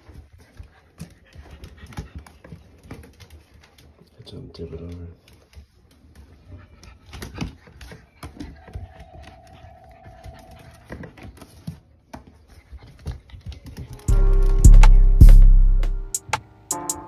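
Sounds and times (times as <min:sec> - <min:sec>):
puppy whining: 0:06.0 - 0:14.1.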